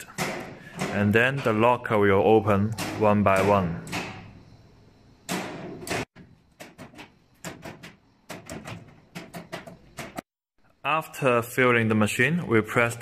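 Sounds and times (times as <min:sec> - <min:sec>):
locker doors clicking open: 0:00.0 - 0:04.4, 0:05.3 - 0:10.2.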